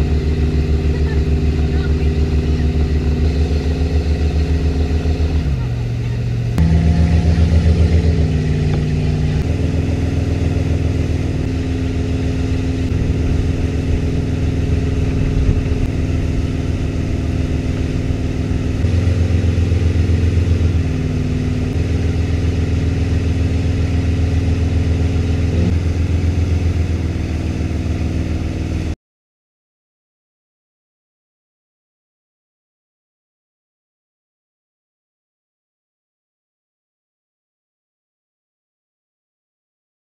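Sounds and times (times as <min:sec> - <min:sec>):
boat engine running: 0:00.0 - 0:29.0.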